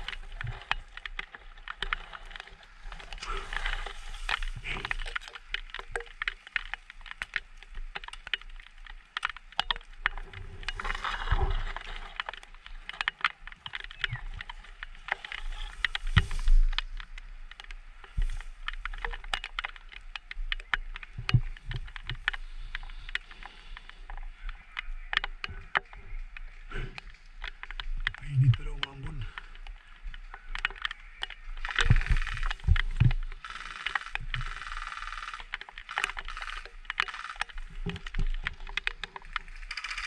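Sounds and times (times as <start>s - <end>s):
dry grass rustling against camera: 0.0s - 40.0s
sharp clicks: 0.0s - 40.0s.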